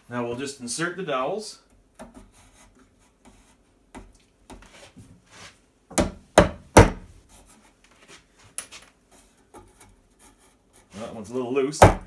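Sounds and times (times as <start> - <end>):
hammer knocking wooden dowels: 5.9 - 7.0.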